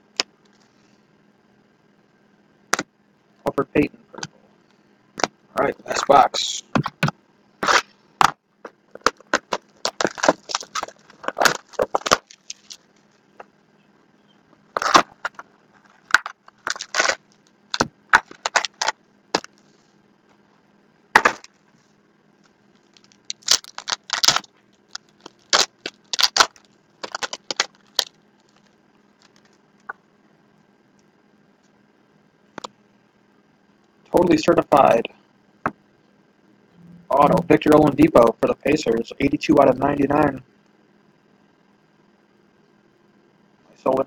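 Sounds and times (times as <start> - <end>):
card packs being torn open: 7.6 - 7.9, 9.1 - 12.9, 14.8 - 19.5, 22.9 - 28.6.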